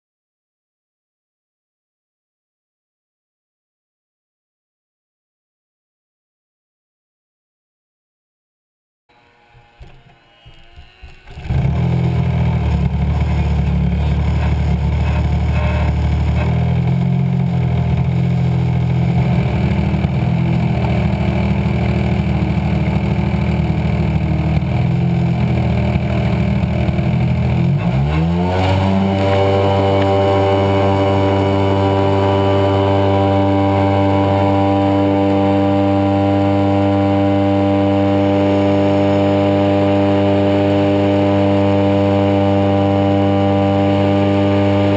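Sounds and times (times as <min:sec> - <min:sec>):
model plane engine: 0:09.1 - 0:44.9.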